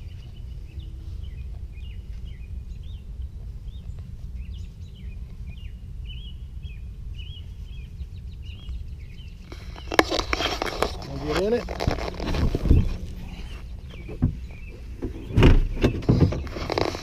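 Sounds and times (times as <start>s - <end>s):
steady low rumble: 0.0s - 16.8s
songbirds chirping and trilling: 0.0s - 17.0s
rustling noise: 9.4s - 17.0s.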